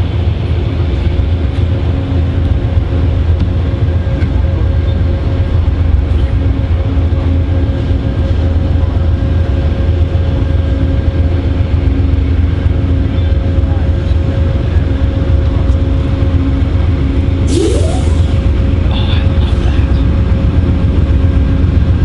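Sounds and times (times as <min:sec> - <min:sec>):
diesel locomotive engine idling: 0:00.0 - 0:22.0
short rising tone: 0:17.5 - 0:18.6.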